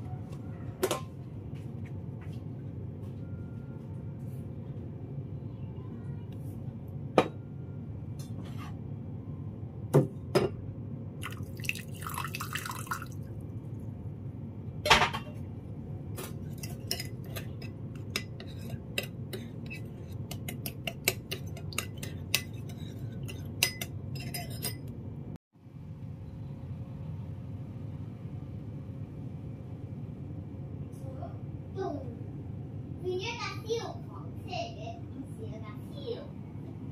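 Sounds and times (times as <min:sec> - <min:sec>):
water pouring: 0:11.2 - 0:13.3
metal spoon clinking on ceramic bowl: 0:16.5 - 0:24.9.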